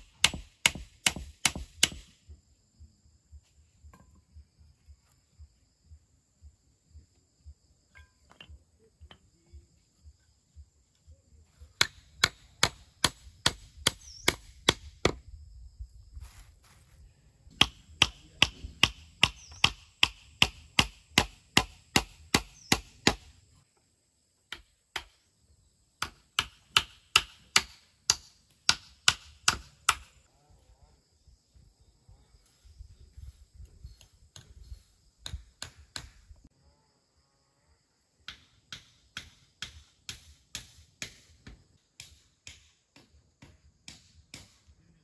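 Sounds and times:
hammer striking wood: 0.0 - 2.2, 11.8 - 15.2, 17.5 - 23.3, 26.0 - 30.1.

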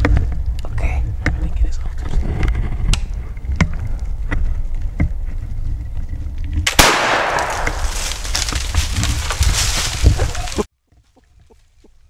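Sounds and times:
flintlock gunshot: 6.7 - 8.1.

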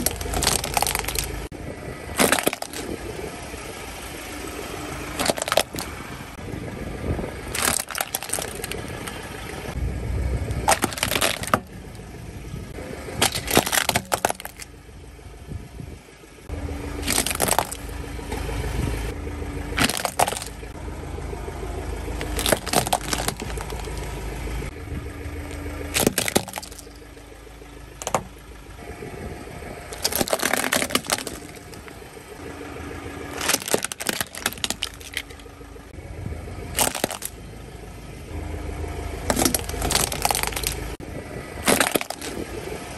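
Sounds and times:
plastic toy cars cracking: 0.0 - 1.4, 2.2 - 3.0, 5.2 - 5.9, 7.5 - 9.0, 10.6 - 11.8, 13.2 - 14.7, 17.0 - 17.9, 19.8 - 20.6, 22.2 - 24.0, 25.9 - 26.9, 28.0 - 28.3, 29.9 - 31.9, 33.4 - 35.4, 36.7 - 37.4, 39.3 - 40.9, 41.6 - 42.4
slow moving car rumble: 0.0 - 42.9.

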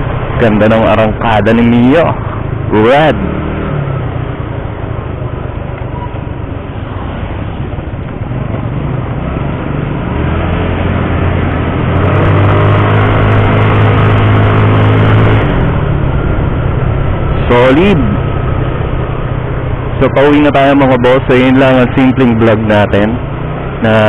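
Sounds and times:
wind noise: 10.2 - 21.2.

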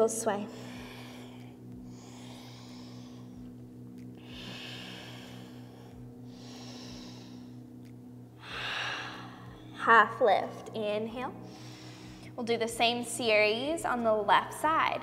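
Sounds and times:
steady low hum: 0.0 - 15.0
person breathing slowly: 0.5 - 3.6, 4.2 - 7.7, 8.4 - 9.7, 11.4 - 12.4.

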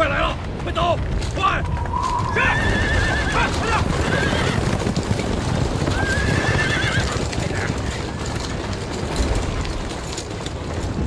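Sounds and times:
horses' hooves clattering: 0.0 - 11.0
storm wind rumbling: 0.0 - 11.0
horse whinnying: 1.7 - 4.8, 5.8 - 7.3.

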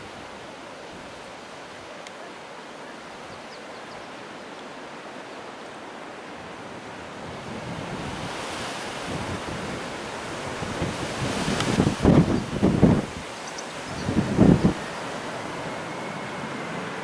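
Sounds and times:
strong wind on microphone: 7.0 - 17.0.

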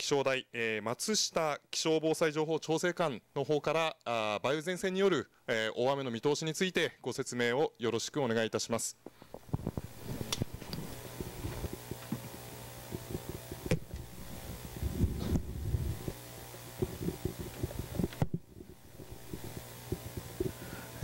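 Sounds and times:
microphone handling bumps and rubs: 9.1 - 21.0
steady low hum: 9.1 - 21.0.

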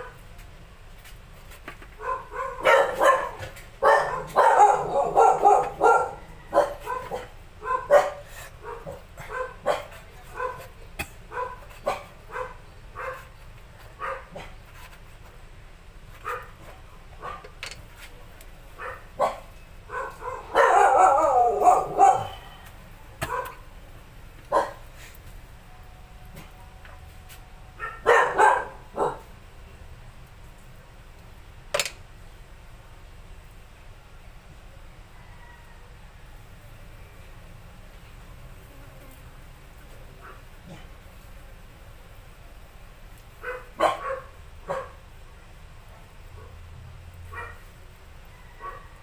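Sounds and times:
dog barking: 2.0 - 10.7, 11.3 - 13.3, 14.0 - 14.6, 16.2 - 17.5, 18.8 - 22.5, 23.2 - 23.7, 24.5 - 24.8, 27.8 - 29.3, 43.4 - 45.0, 47.3 - 47.7, 48.3 - 49.0.

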